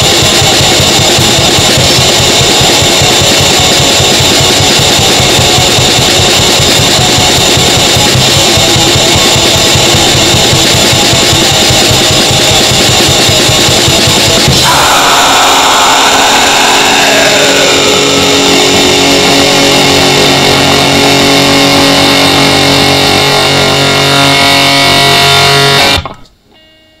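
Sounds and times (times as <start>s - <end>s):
distorted guitar chord ringing: 0.0s - 27.0s.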